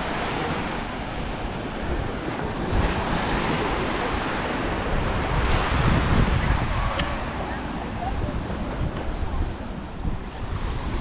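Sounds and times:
waves breaking on sandy shore: 0.0 - 11.0
wind buffeting microphone: 0.0 - 11.0.

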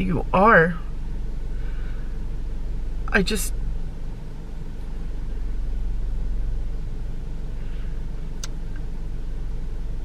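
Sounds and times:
car idling from inside: 0.0 - 10.0
sharp click: 8.4 - 8.9.

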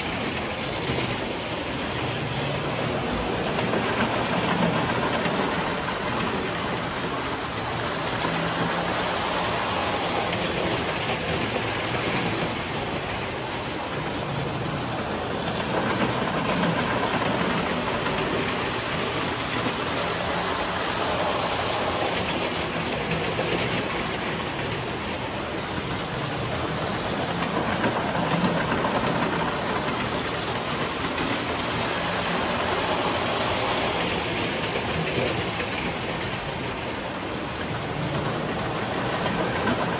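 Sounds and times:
wheels rattling on metal track: 0.0 - 39.9.

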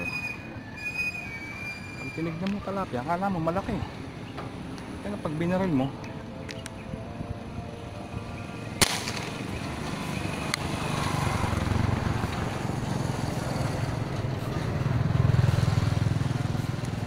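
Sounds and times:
spear gun firing snap: 8.8 - 9.4.

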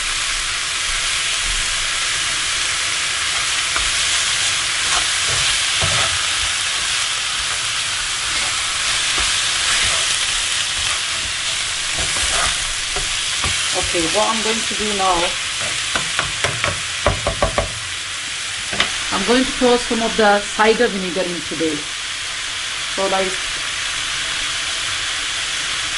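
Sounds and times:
meat and onions sizzling: 0.0 - 25.9
spatula scraping a pan: 3.3 - 16.8.

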